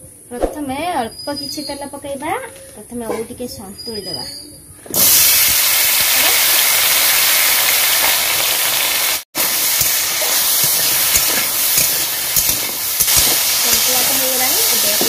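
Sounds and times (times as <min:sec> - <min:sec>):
food sizzling in hot oil: 0:05.0 - 0:15.0.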